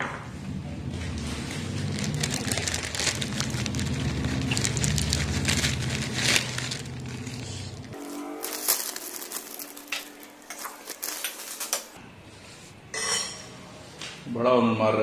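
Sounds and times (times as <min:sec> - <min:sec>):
rice wafers crunching: 0:01.8 - 0:12.0.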